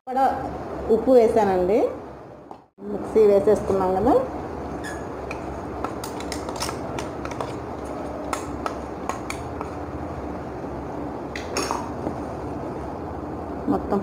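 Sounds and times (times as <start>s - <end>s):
steady low hum: 0.1s - 14.0s.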